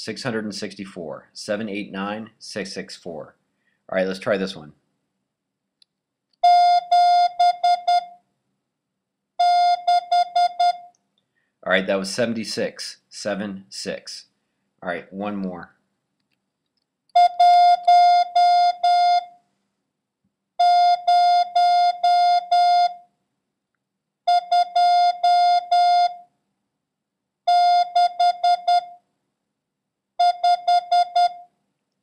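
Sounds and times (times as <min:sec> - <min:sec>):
morse code beeps: 0:06.4 - 0:08.1, 0:09.4 - 0:10.9, 0:27.5 - 0:29.0, 0:30.2 - 0:31.4.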